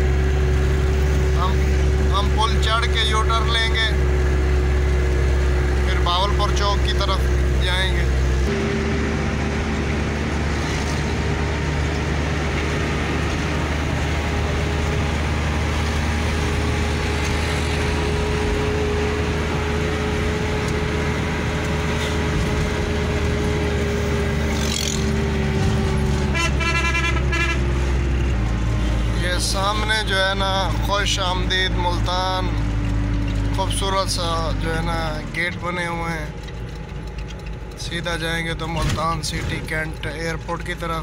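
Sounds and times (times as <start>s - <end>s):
pulsing horn tones: 0.0s - 30.8s
diesel truck engine running: 0.0s - 41.0s
road noise: 0.0s - 41.0s.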